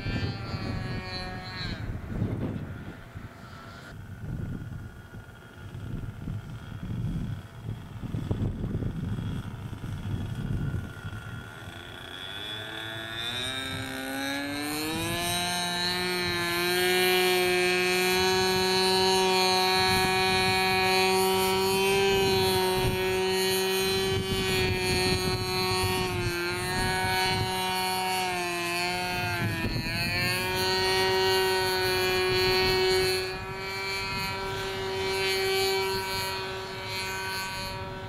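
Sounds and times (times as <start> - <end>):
model plane engine in flight: 0.0 - 38.0.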